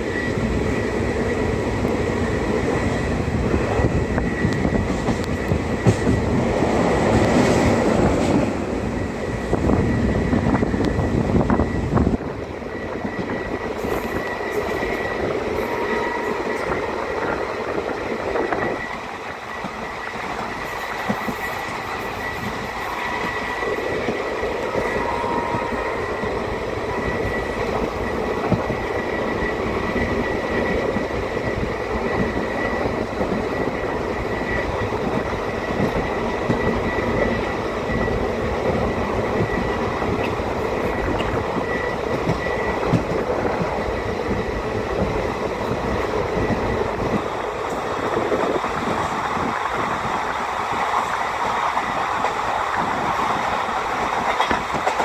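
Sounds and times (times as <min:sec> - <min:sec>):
thin steady whine: 0:00.0 - 0:55.0
train wheels rumbling on rails: 0:00.0 - 0:55.0.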